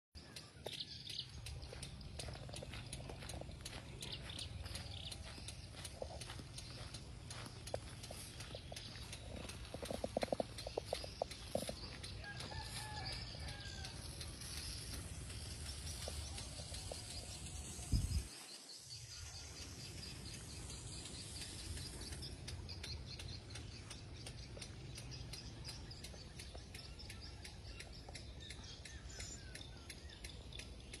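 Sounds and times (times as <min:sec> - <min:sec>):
small birds chirping: 0:00.2 - 0:31.0.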